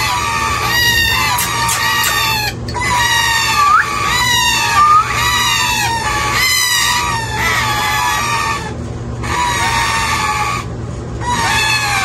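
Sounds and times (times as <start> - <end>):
parakeet chick begging calls: 0.0 - 8.6.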